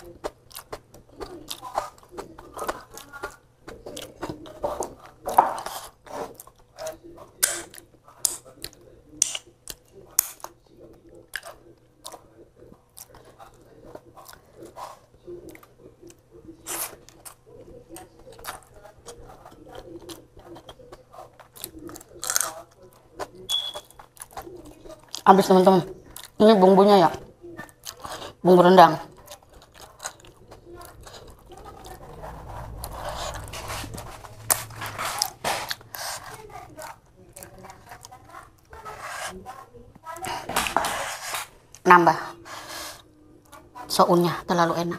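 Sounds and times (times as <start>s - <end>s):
chewing and lip smacks: 0.0s - 25.2s, 26.0s - 26.4s, 27.6s - 28.4s, 29.2s - 38.8s
low rumble: 31.4s - 35.4s.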